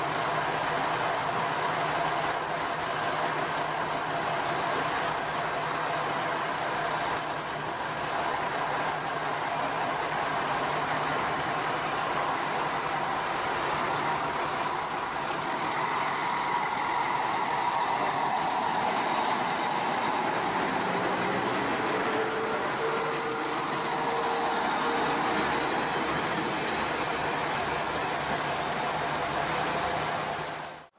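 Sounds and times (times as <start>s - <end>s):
diesel railcar engine under load: 0.0s - 30.9s.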